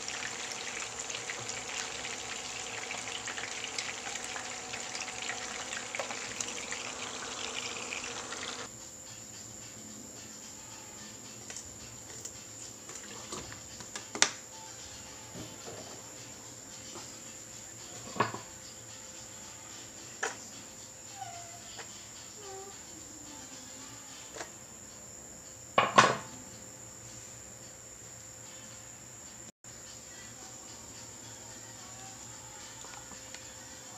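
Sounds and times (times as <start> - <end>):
chicken sizzling in oil: 0.0 - 8.7.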